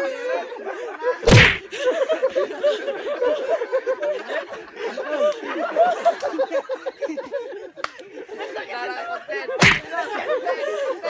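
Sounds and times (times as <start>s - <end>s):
loud thump: 1.3s - 1.6s, 9.6s - 9.9s.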